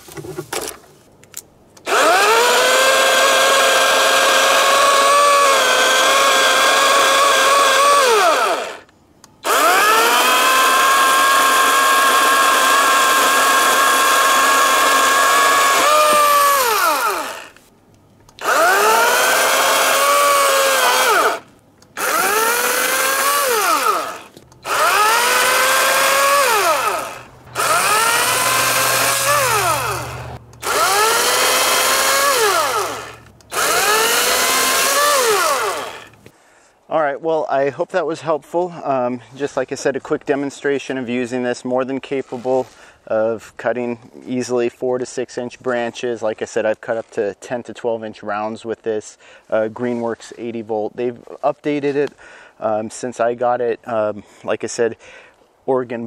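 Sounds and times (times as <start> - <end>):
electric chainsaw cutting branches: 1.8 - 17.7, 18.4 - 36.3.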